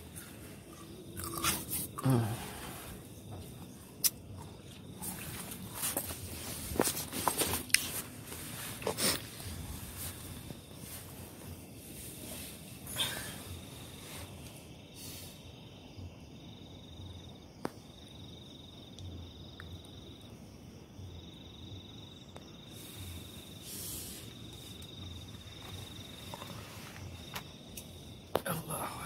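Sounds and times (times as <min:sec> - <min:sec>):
cricket trilling: 0:00.0 - 0:29.0.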